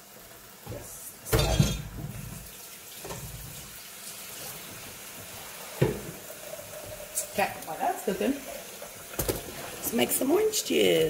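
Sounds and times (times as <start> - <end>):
batter sizzling on a griddle: 0.0 - 11.0
knock: 5.8 - 6.1.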